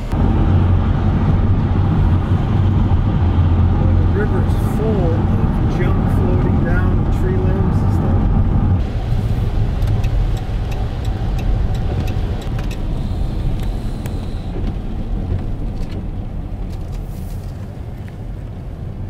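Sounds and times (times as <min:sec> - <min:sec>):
vehicle road rumble: 0:00.0 - 0:19.0
tyre hiss on wet road: 0:08.8 - 0:10.4, 0:12.9 - 0:14.6, 0:17.0 - 0:17.6.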